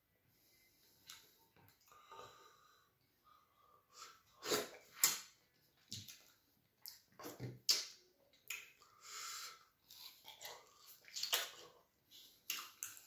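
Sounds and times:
wet eating sounds: 4.3 - 9.0, 9.8 - 13.0.

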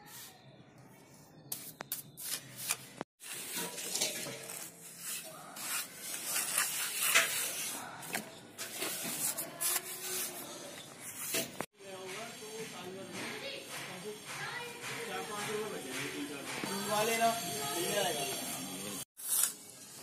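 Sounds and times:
trowel scraping wet plaster: 1.5 - 11.6.

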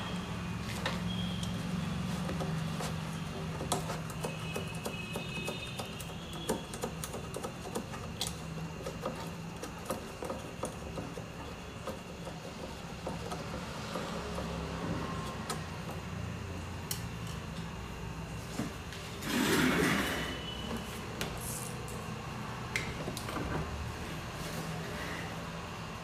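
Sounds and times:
wires and connectors clicking: 3.3 - 13.6, 16.8 - 17.6.

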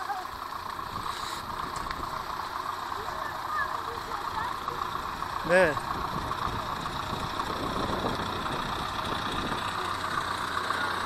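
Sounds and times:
truck engine idling: 0.0 - 11.0
wind rumble on microphone: 5.9 - 9.7.

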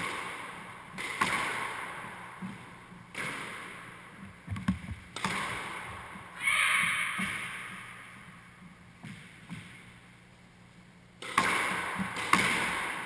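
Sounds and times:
squash ball struck hard: 11.2 - 13.0.

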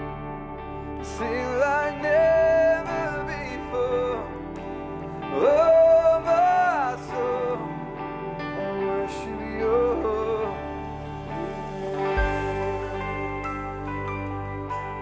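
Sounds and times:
live band playing: 10.9 - 15.0.

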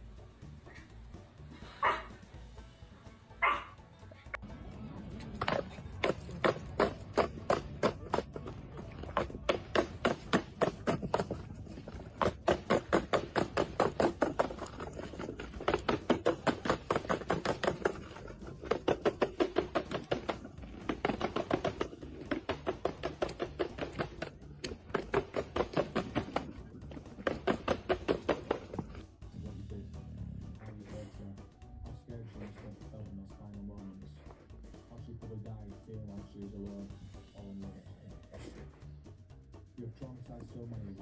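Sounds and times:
skateboard wheels clacking over paving: 5.3 - 29.0.

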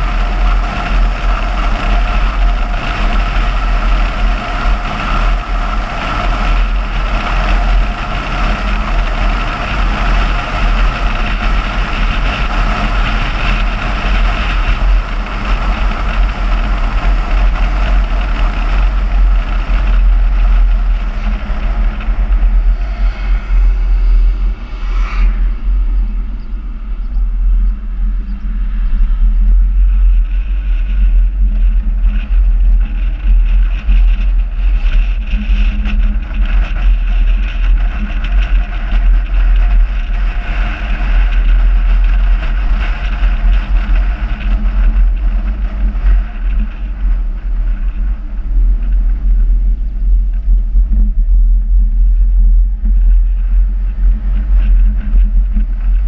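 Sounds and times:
car engine and tyre noise: 0.0 - 56.0
wind rumble on microphone: 0.0 - 56.0
brief whoosh: 22.1 - 27.5.

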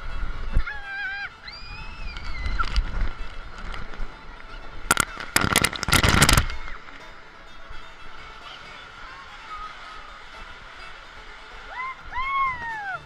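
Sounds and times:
water splashing and spraying: 1.3 - 7.4.

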